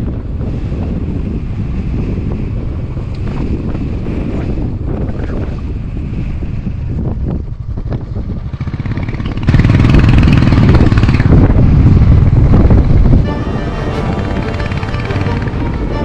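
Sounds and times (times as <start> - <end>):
motorcycle engine running: 6.8 - 13.3.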